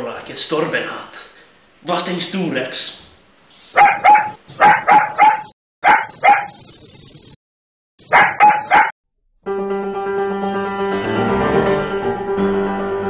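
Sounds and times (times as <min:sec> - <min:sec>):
dog barking: 0:03.8 - 0:06.6, 0:08.1 - 0:09.0
piano music: 0:09.4 - 0:13.0.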